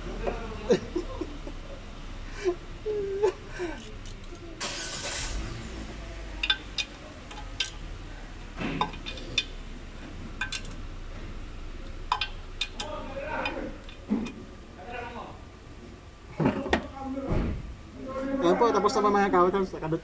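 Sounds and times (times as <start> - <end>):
hand tool clicking on metal bolts: 6.4 - 7.8, 12.1 - 14.0.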